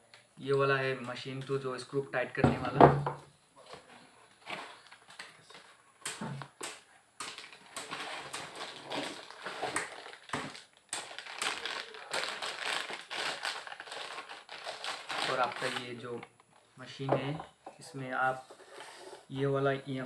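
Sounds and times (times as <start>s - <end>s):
crinkling plastic packaging: 7.2s - 16.3s.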